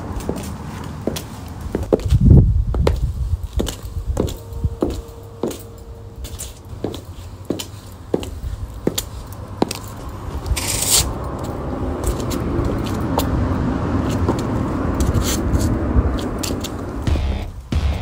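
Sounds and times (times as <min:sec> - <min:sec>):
high heels clicking: 0:00.0 - 0:18.0
road traffic passing: 0:00.0 - 0:18.0.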